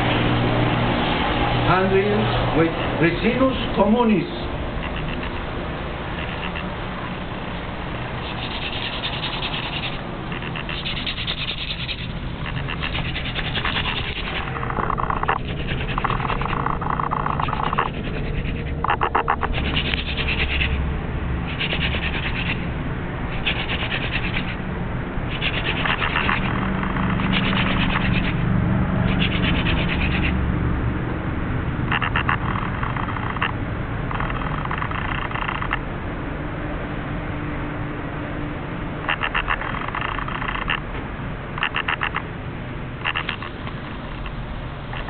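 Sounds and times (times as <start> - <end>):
wooden spindle grinding on board: 4.8 - 5.4, 6.1 - 6.7, 8.2 - 20.8, 21.4 - 22.7, 23.3 - 24.6, 25.3 - 28.4, 29.0 - 30.4, 31.9 - 35.8, 41.6 - 42.2, 43.0 - 45.0.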